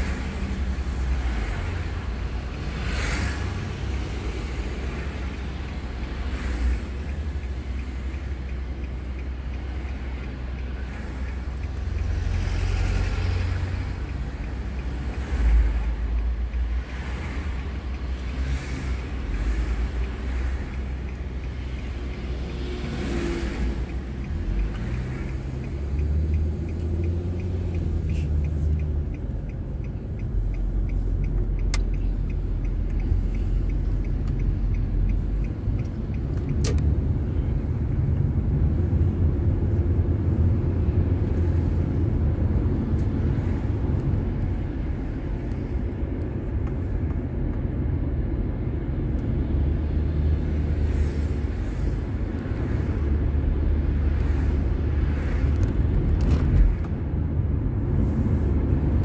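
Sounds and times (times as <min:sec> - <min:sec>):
car engine and road rumble: 0:00.0 - 0:59.0
light ticks: 0:00.1 - 0:57.1
sharp clicks: 0:17.6 - 0:39.0.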